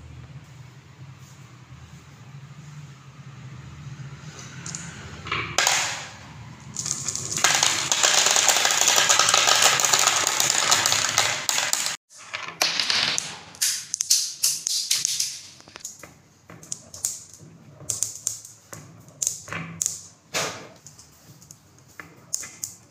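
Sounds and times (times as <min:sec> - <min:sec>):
marbles rattling down wooden track: 0:06.8 - 0:14.2
marbles clicking into place: 0:06.8 - 0:15.9.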